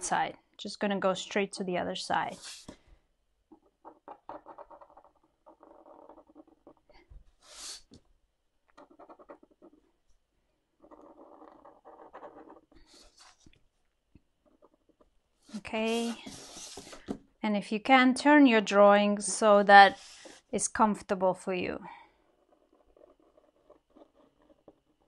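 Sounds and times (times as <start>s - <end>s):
pen nib scratching paper: 2.3s - 2.8s, 3.8s - 8.0s, 8.8s - 9.8s, 10.8s - 13.5s, 14.4s - 17.1s, 19.9s - 20.6s, 22.0s - 25.0s.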